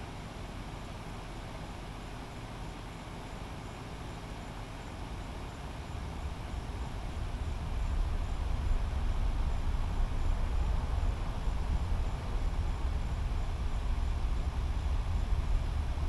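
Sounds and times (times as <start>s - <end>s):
distant rocket engine rumble: 5.6s - 16.0s.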